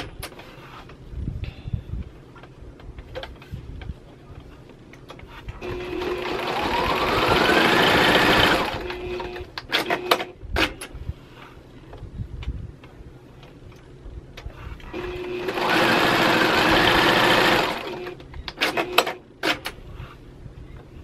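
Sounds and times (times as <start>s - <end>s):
sewing machine stitching: 5.6s - 10.1s, 14.9s - 19.2s.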